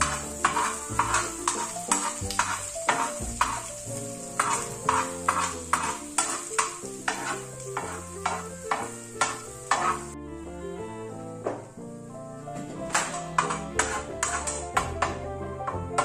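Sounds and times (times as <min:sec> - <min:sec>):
metal spoon scraping a pan: 0:00.0 - 0:10.2, 0:12.6 - 0:16.0
background music: 0:00.0 - 0:16.0
frying sizzle: 0:00.0 - 0:16.0.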